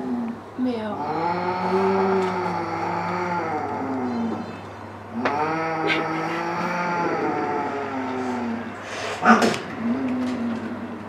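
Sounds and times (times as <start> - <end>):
cat threat yowls: 5.3 - 8.6.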